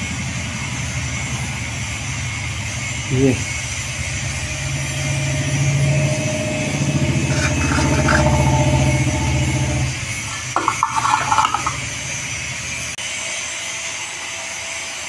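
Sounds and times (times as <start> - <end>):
motor humming: 6.4 - 12.9
metal rattling clatter: 7.3 - 8.7, 10.2 - 11.9.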